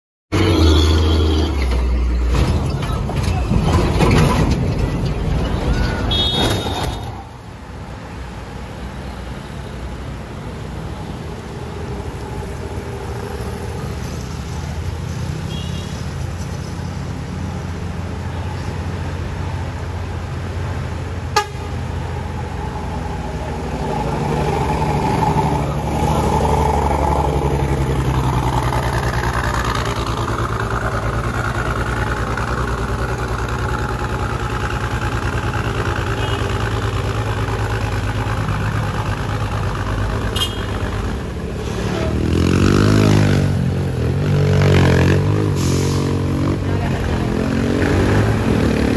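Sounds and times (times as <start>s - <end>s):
bus diesel engine labouring: 0.3s - 15.3s, 17.1s - 48.9s.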